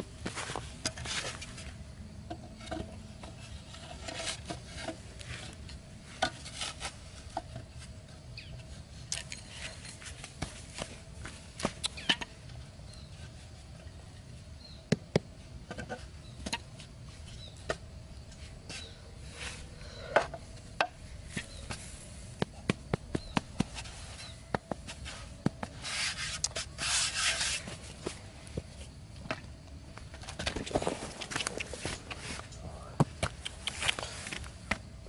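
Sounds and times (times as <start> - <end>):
scraping and rubbing: 2.4 - 7.6, 23.0 - 28.2.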